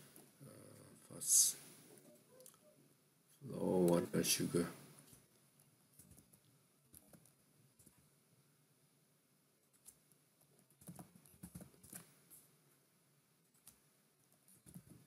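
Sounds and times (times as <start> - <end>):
faint keyboard typing: 5.0 - 8.1, 9.6 - 12.5, 13.4 - 15.0.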